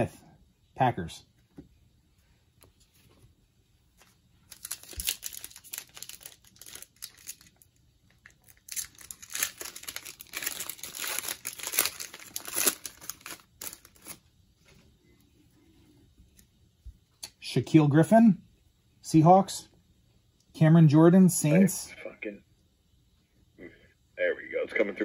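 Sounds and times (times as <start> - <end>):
foil wrapper crinkling and tearing: 4.5 - 14.2.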